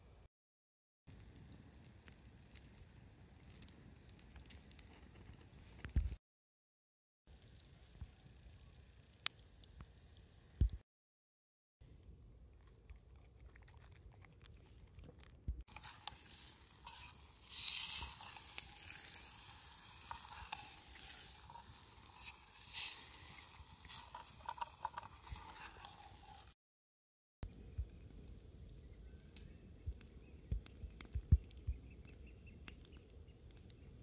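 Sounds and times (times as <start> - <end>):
utensil scraping a metal tin: 15.7 - 26.5
food sizzling: 15.7 - 26.6.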